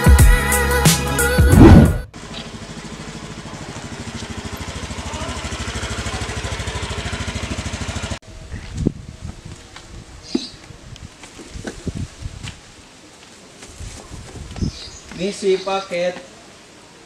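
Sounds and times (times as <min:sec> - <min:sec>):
upbeat intro music: 0:00.0 - 0:02.1
motor scooter engine putter: 0:02.2 - 0:06.9.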